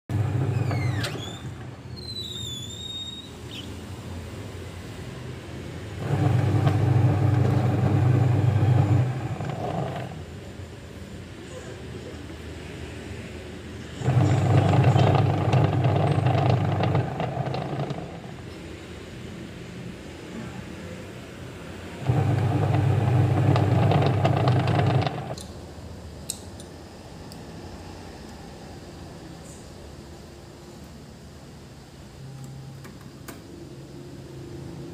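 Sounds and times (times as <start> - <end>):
washing machine motor humming: 0.1 - 1.7, 5.9 - 10.5, 14.0 - 18.5, 22.0 - 25.4
rattle of clicks: 14.0 - 18.4, 22.1 - 25.5.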